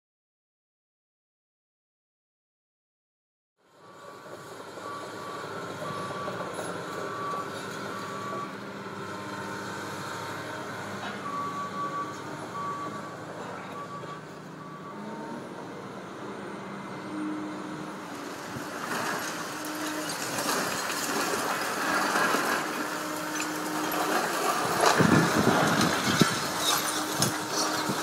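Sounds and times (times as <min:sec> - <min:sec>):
excavator diesel engine running: 0:03.7 - 0:28.0
debris crashing down: 0:18.2 - 0:28.0
rubble crunching and falling: 0:18.6 - 0:28.0.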